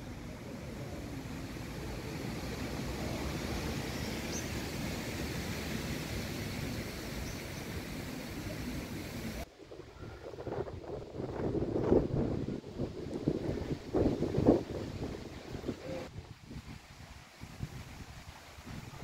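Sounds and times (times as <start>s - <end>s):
hiss: 0.0s - 9.5s.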